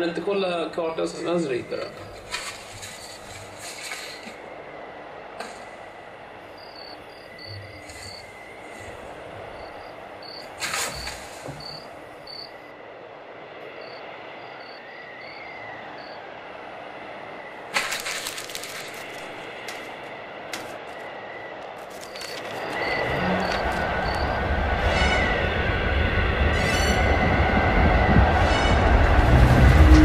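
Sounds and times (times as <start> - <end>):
loud rustling burst: 1.9 - 6.4, 7.6 - 12.5, 17.6 - 25.6.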